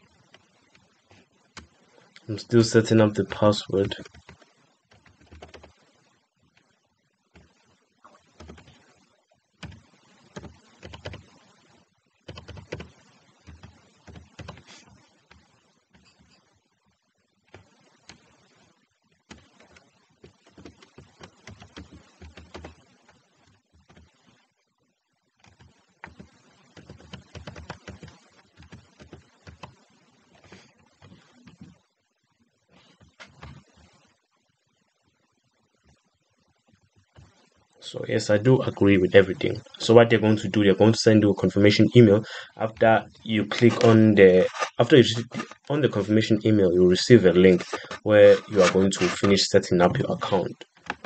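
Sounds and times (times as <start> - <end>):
computer keyboard typing: 3.9 - 5.7, 8.2 - 8.8, 9.6 - 11.3, 12.3 - 12.9, 13.5 - 14.7, 19.3 - 22.8, 25.4 - 29.8, 43.5 - 45.8, 47.4 - 51.0.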